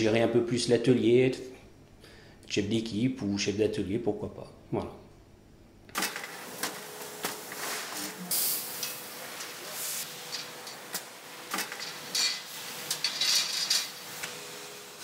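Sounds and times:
faint machine hum: 0:00.0 - 0:15.0
short bursts of hiss: 0:06.0 - 0:15.0.

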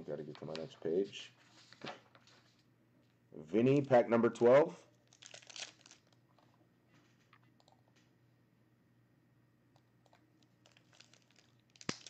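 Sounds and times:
foil wrapper crinkling: 0:05.0 - 0:06.2, 0:10.6 - 0:12.0
faint clicks and crackles: 0:05.0 - 0:08.1, 0:09.7 - 0:12.0.

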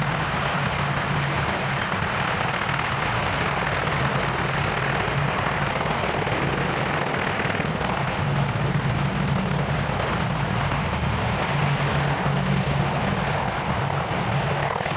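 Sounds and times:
helicopter rotor chop: 0:00.0 - 0:14.9
turbine engines rushing: 0:00.0 - 0:14.9.

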